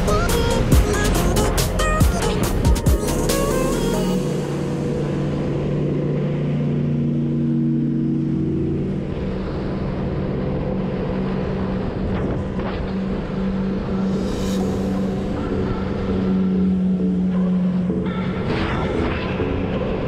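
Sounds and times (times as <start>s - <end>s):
watercraft engine running: 0.0s - 20.0s
water rushing along hull: 4.2s - 20.0s.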